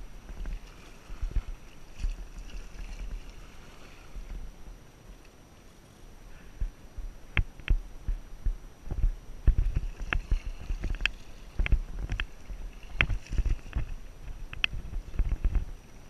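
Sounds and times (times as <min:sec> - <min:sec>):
paddle strokes splashing water: 0:00.0 - 0:04.6, 0:09.4 - 0:16.0
sharp clicks and knocks: 0:12.9 - 0:15.6.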